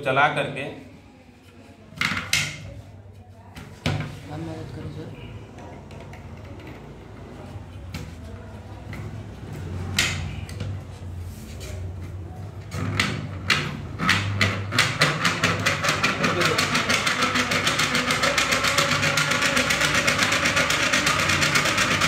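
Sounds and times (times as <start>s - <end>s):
hand-cranked generator clicking: 12.7s - 22.0s.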